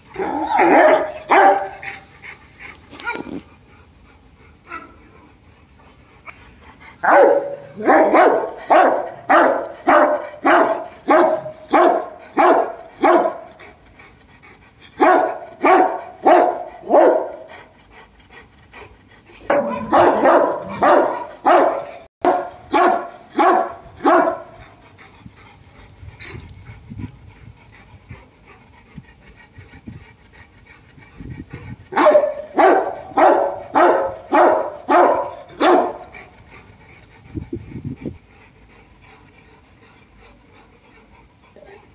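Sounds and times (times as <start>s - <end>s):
dog barking: 0.6s - 1.8s, 7.0s - 13.4s, 15.0s - 17.3s, 19.5s - 24.5s, 32.0s - 36.0s.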